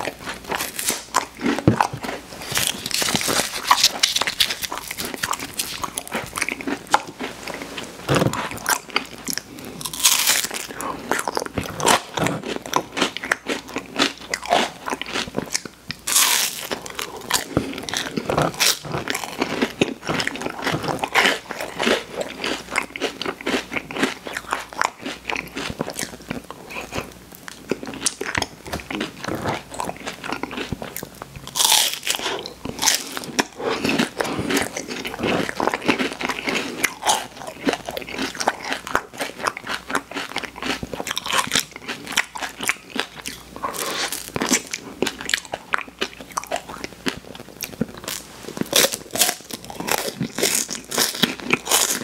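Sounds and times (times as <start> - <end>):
chewing: 0.0 - 52.0.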